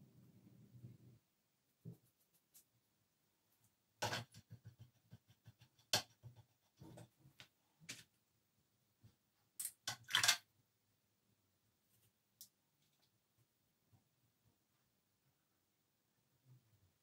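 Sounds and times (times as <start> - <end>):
paintbrush scraping and tapping: 1.7 - 2.8, 3.5 - 8.1.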